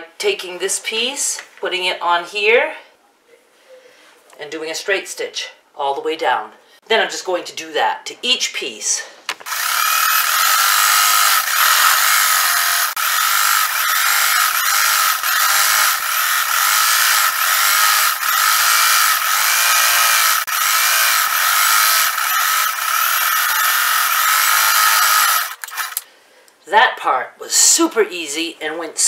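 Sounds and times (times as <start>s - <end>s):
electric sewing machine running: 9.5s - 26.0s.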